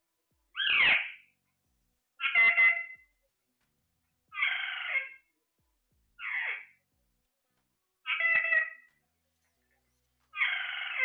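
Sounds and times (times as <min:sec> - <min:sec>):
parakeet squawks: 0:00.6 - 0:01.3, 0:02.2 - 0:03.0, 0:04.3 - 0:05.3, 0:06.2 - 0:06.8, 0:08.0 - 0:08.9, 0:10.3 - 0:11.0.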